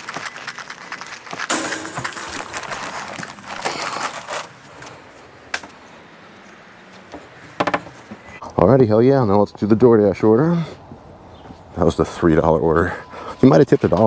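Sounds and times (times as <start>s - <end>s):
bag rustling and handling: 0.0s - 4.9s.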